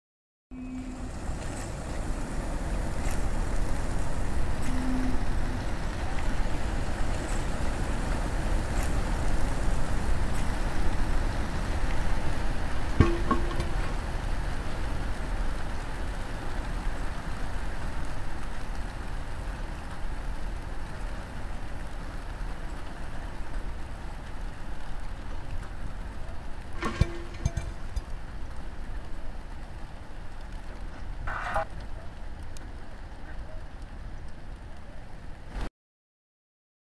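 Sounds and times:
noisy drone rumble: 0:00.5 - 0:15.8, 0:25.9 - 0:31.8
sharp knock: 0:13.0 - 0:14.0, 0:26.8 - 0:28.0.

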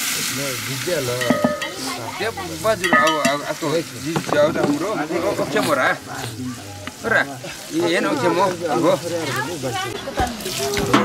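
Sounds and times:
hot oil sizzling in pot: 0:00.0 - 0:11.0
stick stirring pot: 0:01.1 - 0:02.0, 0:02.6 - 0:07.0.

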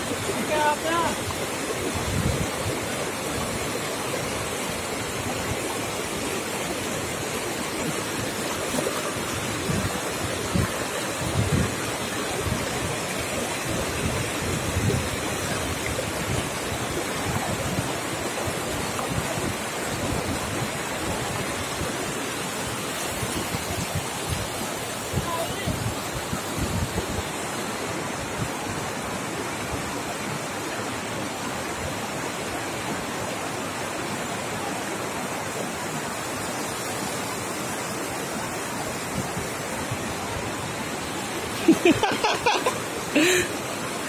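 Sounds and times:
river rushing over stones: 0:00.0 - 0:44.0
wind buffeting microphone: 0:01.9 - 0:02.8, 0:09.1 - 0:21.9, 0:23.2 - 0:27.3.

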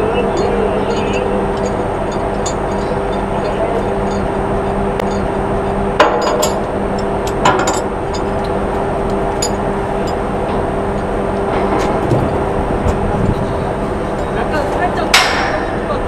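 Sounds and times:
rushing noise on deck: 0:00.0 - 0:16.0
ship machinery droning: 0:00.0 - 0:16.0
sharp metal clanks: 0:06.0 - 0:08.6, 0:14.1 - 0:16.0.

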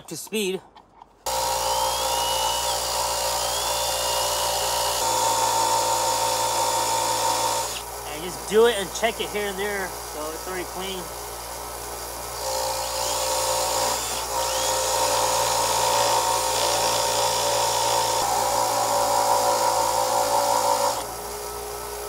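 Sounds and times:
cordless drill whine: 0:01.3 - 0:08.2, 0:12.4 - 0:21.1
bench grinder running hum: 0:01.3 - 0:22.0.

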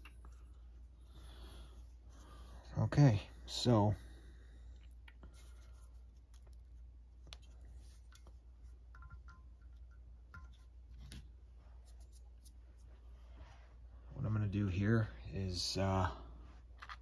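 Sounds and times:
faint metallic rings: 0:08.9 - 0:10.7.

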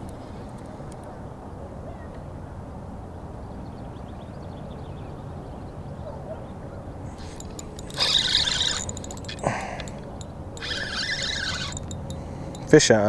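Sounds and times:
wind and water noise: 0:05.8 - 0:13.0
reel ticking: 0:07.1 - 0:12.8.

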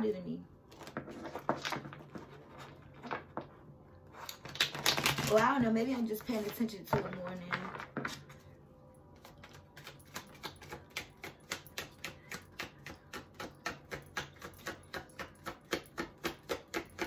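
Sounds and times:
cards being shuffled: 0:04.2 - 0:06.7.

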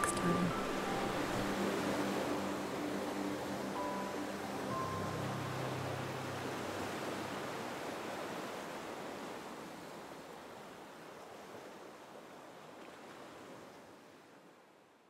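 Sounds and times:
music: 0:00.0 - 0:07.8.

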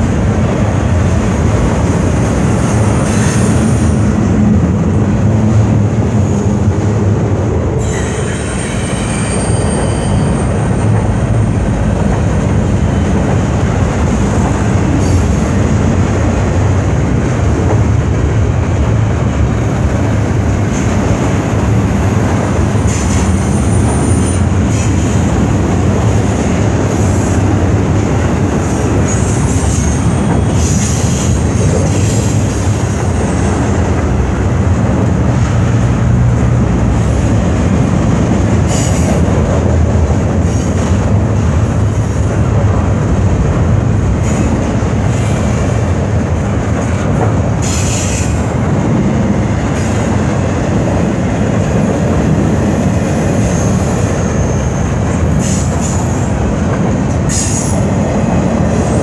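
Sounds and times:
freight cars rumbling on rails: 0:00.0 - 0:59.0
wheel squeals: 0:07.8 - 0:11.1.

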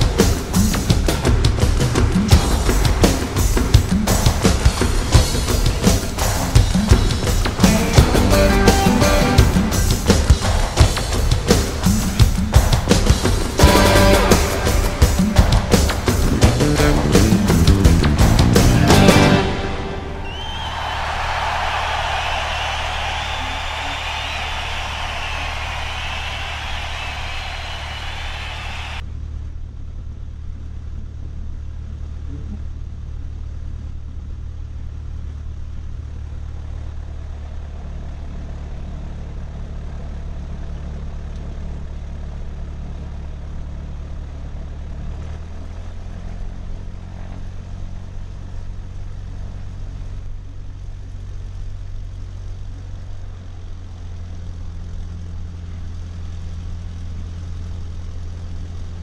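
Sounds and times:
aircraft engine droning: 0:01.2 - 0:30.1.

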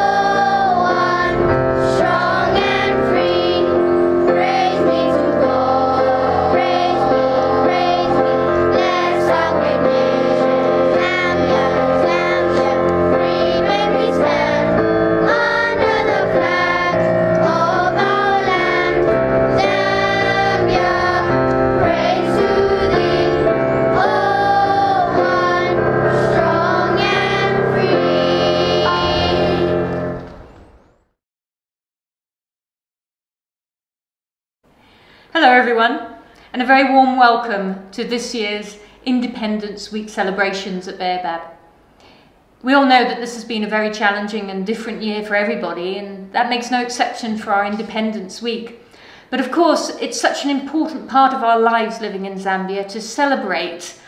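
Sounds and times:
children singing together: 0:00.0 - 0:30.4
instrumental accompaniment: 0:00.0 - 0:31.0.

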